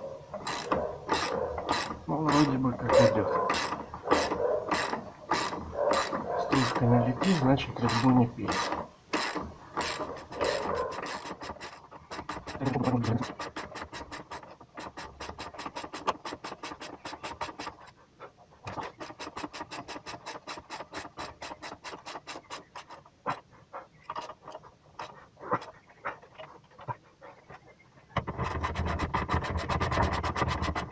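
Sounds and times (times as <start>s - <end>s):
scraping knocks: 0.3s - 18.0s, 24.0s - 30.9s
ratchet wrench clicking: 0.4s - 17.7s.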